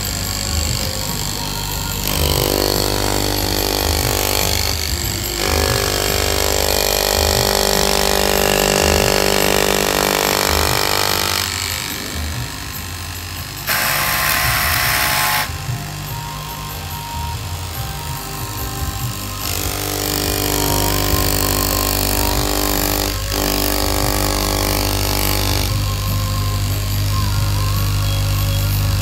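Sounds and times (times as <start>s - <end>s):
cloth cutting machine whine: 0.0s - 29.0s.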